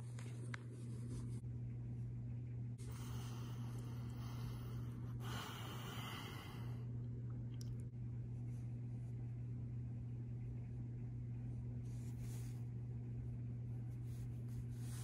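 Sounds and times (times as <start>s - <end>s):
low electrical hum: 0.0s - 15.0s
person breathing: 2.8s - 7.0s.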